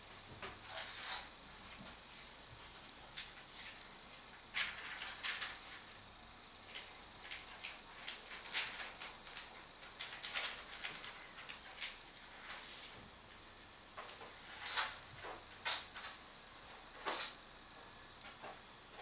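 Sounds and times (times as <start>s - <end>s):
paper rustling and crinkling: 4.5s - 5.9s, 6.8s - 13.1s.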